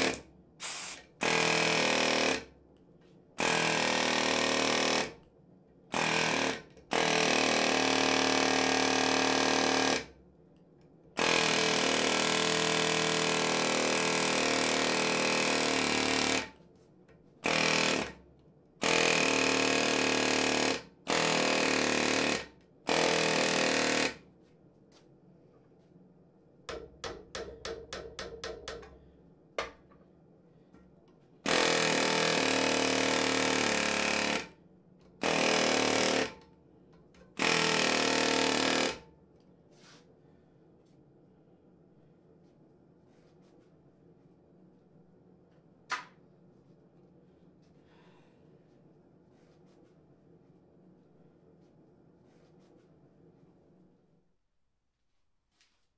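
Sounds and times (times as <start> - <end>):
pneumatic air hammer rattling: 0.0 - 2.2.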